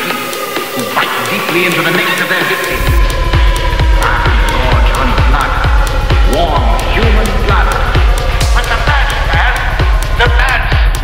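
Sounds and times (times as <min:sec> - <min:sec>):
deep bass: 0:00.0 - 0:11.0
hi-hat ticks: 0:00.0 - 0:11.0
pounding kick drum: 0:02.5 - 0:11.0.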